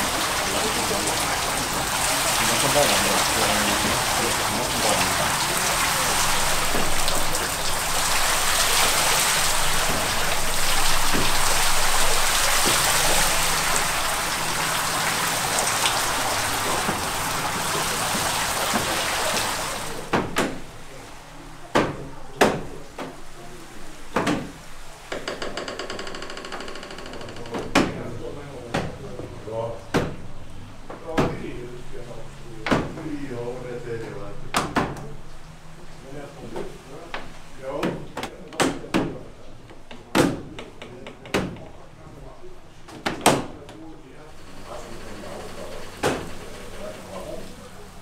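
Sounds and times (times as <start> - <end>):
water splashing off water wheel: 0.0 - 20.8, 44.4 - 48.0
wooden gears knocking: 25.1 - 28.0.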